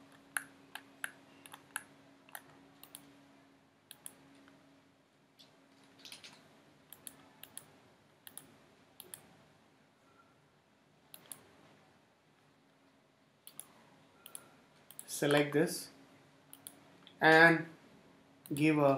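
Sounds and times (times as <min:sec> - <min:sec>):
quiet room hum: 0:00.0 - 0:18.9
computer mouse clicks: 0:00.1 - 0:03.1, 0:03.9 - 0:04.2, 0:05.4 - 0:09.3, 0:11.1 - 0:11.5, 0:13.4 - 0:15.5, 0:16.5 - 0:17.2.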